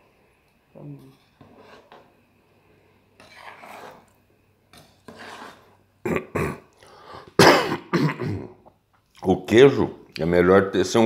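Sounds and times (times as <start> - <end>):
person coughing: 6.0 - 6.7, 7.4 - 8.6.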